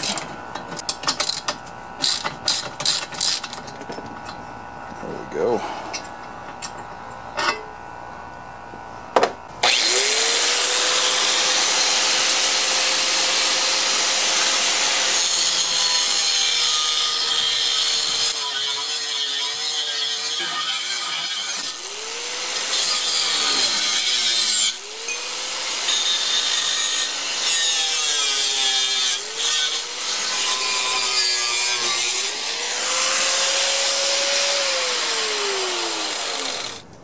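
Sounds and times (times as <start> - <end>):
angle grinder cutting steel: 9.6 - 36.9.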